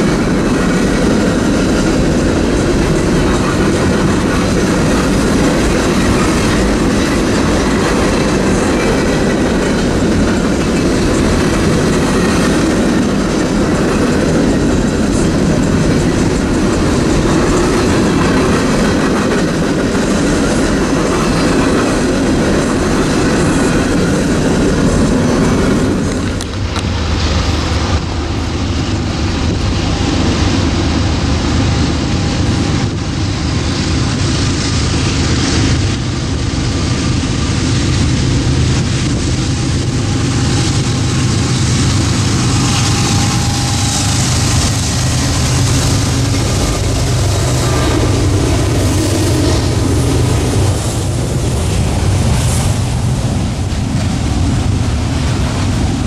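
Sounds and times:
locomotive engine rumbling: 0.0s - 56.0s
train wheels on rails: 0.0s - 56.0s
noisy hiss: 19.5s - 56.0s.

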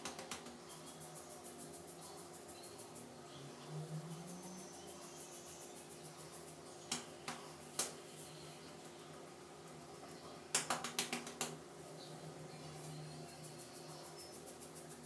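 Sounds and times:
fingertips scratching scalp through hair: 0.0s - 3.2s, 4.0s - 8.5s, 12.8s - 15.0s.

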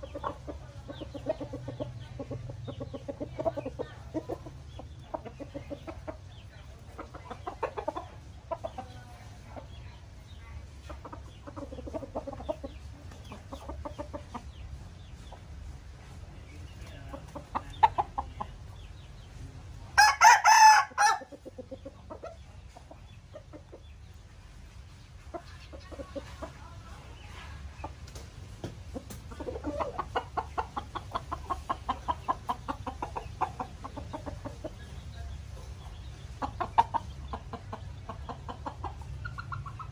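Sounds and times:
roosters clucking: 0.0s - 39.9s
rooster crowing: 20.0s - 21.3s.

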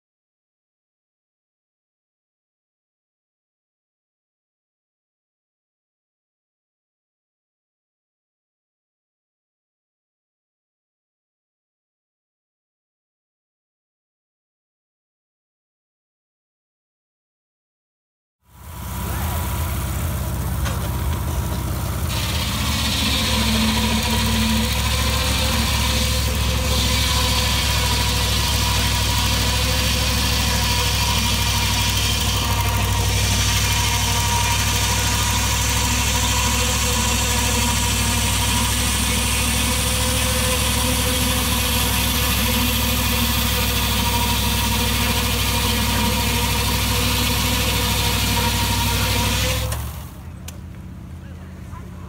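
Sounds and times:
ice saw engine running: 18.5s - 52.0s
saw blade hissing through ice: 22.1s - 49.7s.

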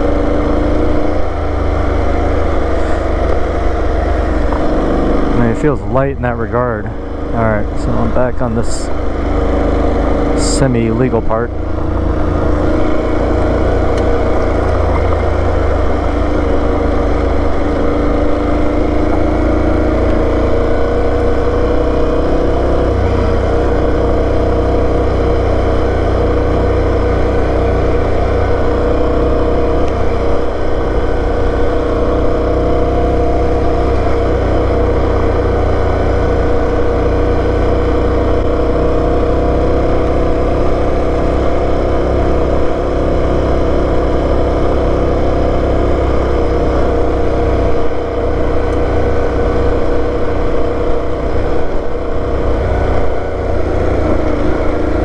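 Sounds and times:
motorcycle engine running: 0.0s - 55.0s
tyres on gravel rumbling: 0.0s - 55.0s.

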